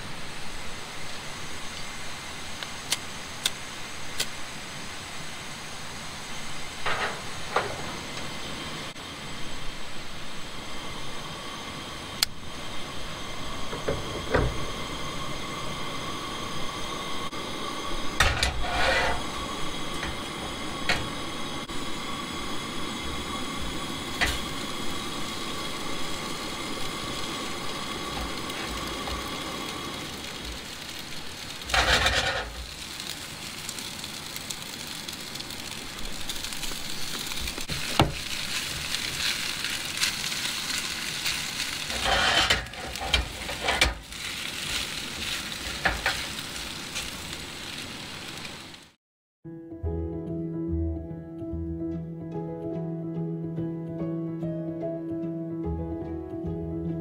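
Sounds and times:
gas burner hissing: 0.0s - 49.0s
potatoes sizzling in a pan: 12.5s - 49.0s
pan and utensil clanking: 18.2s - 21.2s, 31.6s - 32.7s, 41.8s - 46.4s
rustling clatter: 31.4s - 32.9s, 37.5s - 46.4s.

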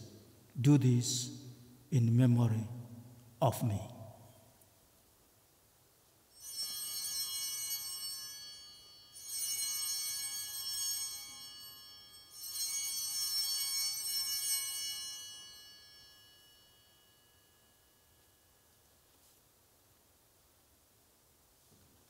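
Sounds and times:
small handbells ringing: 6.3s - 18.8s.

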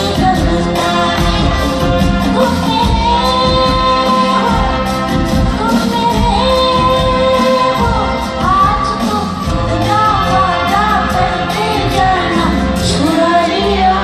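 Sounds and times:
band with drums and keyboards: 0.0s - 14.0s
woman singing: 0.0s - 14.0s.

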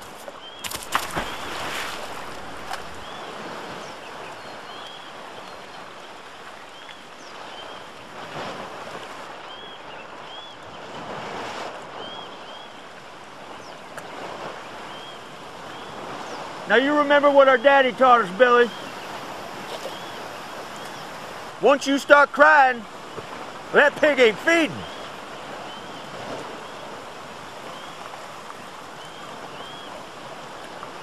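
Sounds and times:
boot splashing in stream: 0.0s - 4.0s
creek water rushing: 0.0s - 31.0s.

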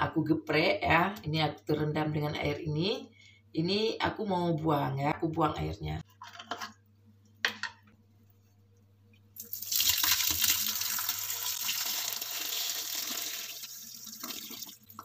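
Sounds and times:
water pouring into metal strainer: 9.4s - 15.0s.

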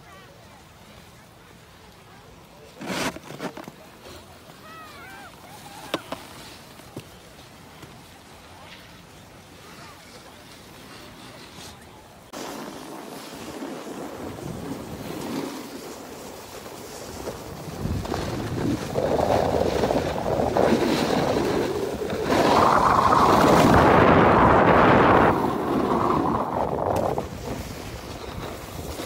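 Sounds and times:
snowboard scraping over snow: 2.7s - 8.0s, 9.6s - 29.0s
wind on microphone: 16.9s - 29.0s.

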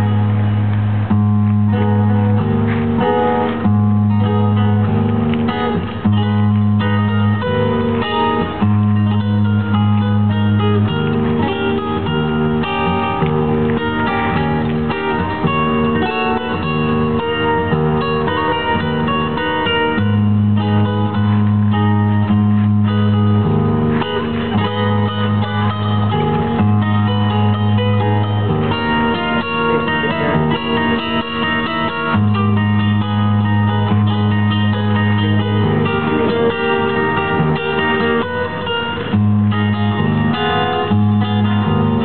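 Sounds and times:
classical guitar playing: 0.0s - 42.0s.

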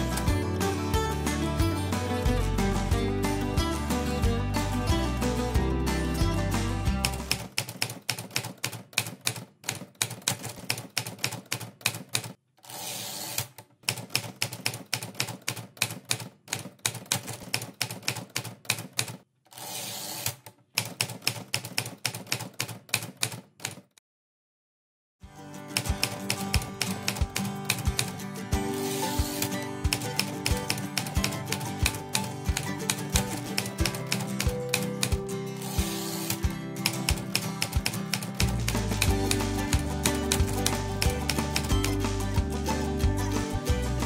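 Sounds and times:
background music: 0.0s - 7.5s, 25.2s - 44.0s
typewriter carriage sliding sweep: 7.0s - 23.9s, 26.0s - 41.7s
typewriter key strikes: 29.2s - 41.8s.

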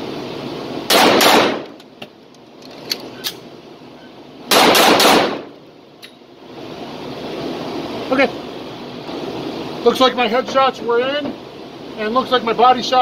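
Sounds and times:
pistol shots echoing indoors: 0.9s - 1.7s, 4.5s - 5.5s.

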